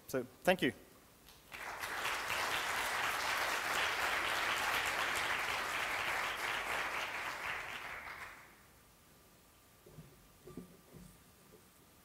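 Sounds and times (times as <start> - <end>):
audience applauding: 1.5 - 8.6.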